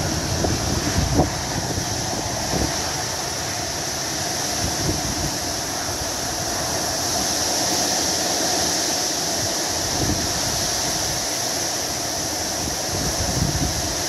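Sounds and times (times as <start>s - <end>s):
torrential rain pouring: 0.0s - 14.0s
wind gusts buffeting microphone: 0.0s - 14.0s.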